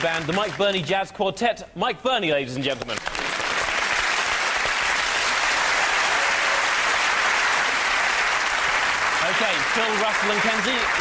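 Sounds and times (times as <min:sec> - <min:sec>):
audience applauding: 0:00.0 - 0:00.7, 0:02.9 - 0:11.0.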